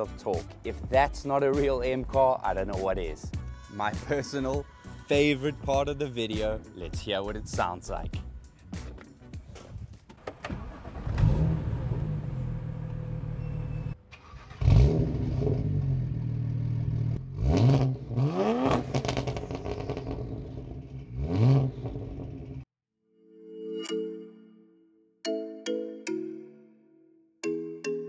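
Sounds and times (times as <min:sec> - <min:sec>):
car engine starting and idling: 0:10.0 - 0:17.4.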